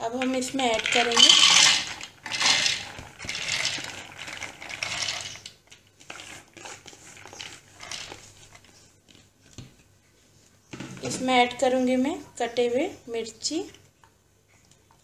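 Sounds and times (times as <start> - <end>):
grains clattering onto plastic: 0.0 - 8.6.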